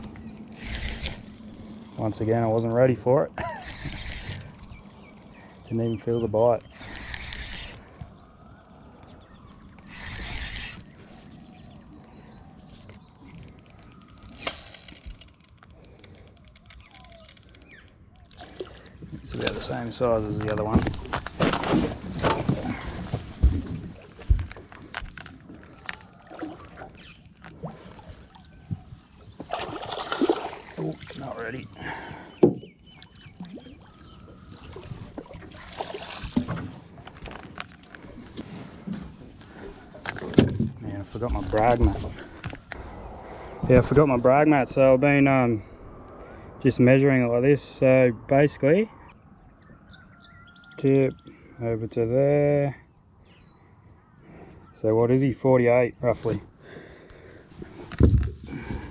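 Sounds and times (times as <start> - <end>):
fishing reel gears ticking: 0.0 - 18.4, 23.9 - 35.2
water splashing: 18.2 - 38.4.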